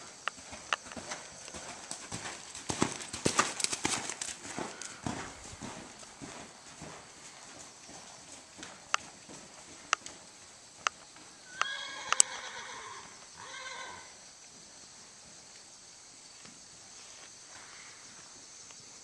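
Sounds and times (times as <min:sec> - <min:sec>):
sharp clicks: 0:10.8 - 0:12.3
horse whinnying: 0:11.4 - 0:14.1.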